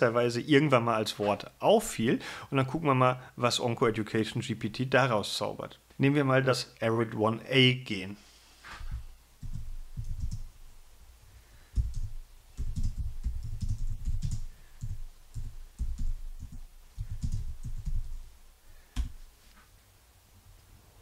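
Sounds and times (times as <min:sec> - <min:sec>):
typing on computer keyboard: 0:09.4 - 0:10.5, 0:11.8 - 0:18.2.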